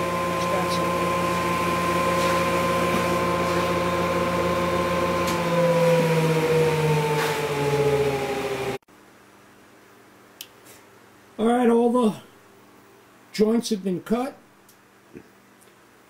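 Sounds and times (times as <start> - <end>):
spindle shaper motor humming: 0.0 - 8.8.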